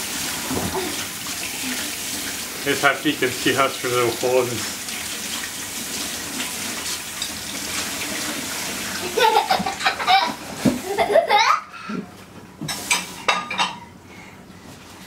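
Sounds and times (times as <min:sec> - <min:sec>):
water running from tap: 0:00.0 - 0:11.3.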